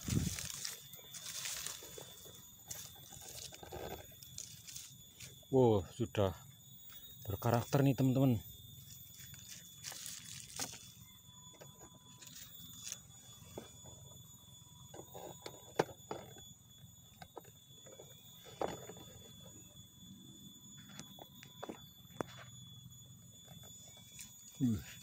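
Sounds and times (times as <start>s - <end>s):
dry leaves and twigs crackling: 0.0s - 5.5s, 6.9s - 14.0s, 23.5s - 25.0s
thin high-pitched tone: 0.0s - 16.5s, 17.1s - 25.0s.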